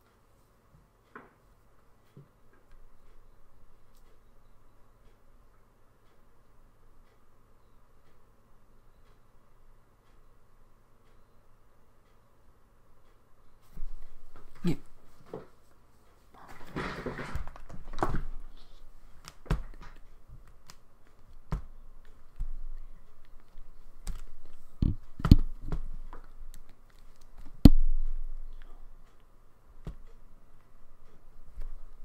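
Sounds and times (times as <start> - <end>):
soft rustling: 13.6 - 32.0.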